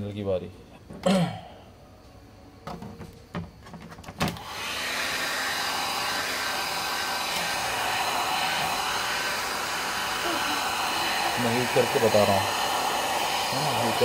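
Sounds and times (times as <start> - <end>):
hair dryer blowing: 4.4 - 14.0.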